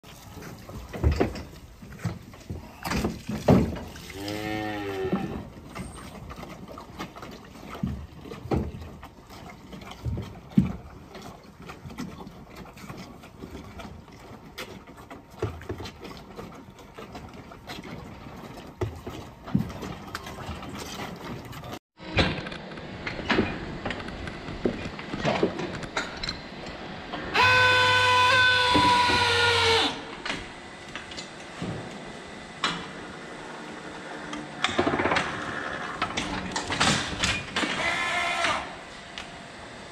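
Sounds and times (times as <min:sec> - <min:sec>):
knocks and clanks: 0:00.8 - 0:04.0, 0:34.6 - 0:37.9
calf mooing: 0:04.1 - 0:05.4, 0:27.4 - 0:30.0.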